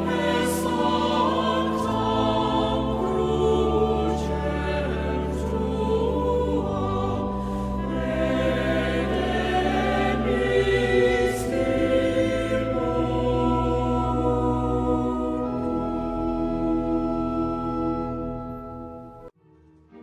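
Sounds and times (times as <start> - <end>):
choir singing sustained chords: 0.0 - 19.4.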